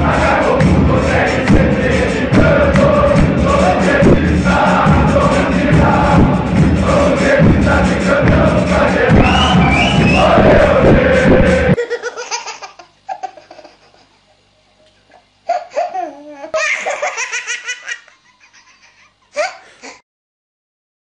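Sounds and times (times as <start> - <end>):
stadium crowd singing over music: 0.0 - 11.8
baby belly laughing: 11.8 - 14.3, 15.5 - 20.0.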